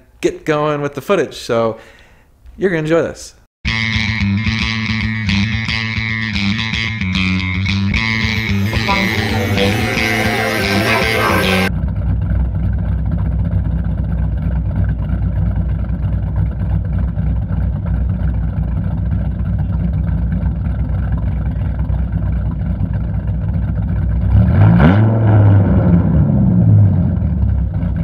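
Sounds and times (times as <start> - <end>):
car engine idling and revving: 8.0 - 28.0.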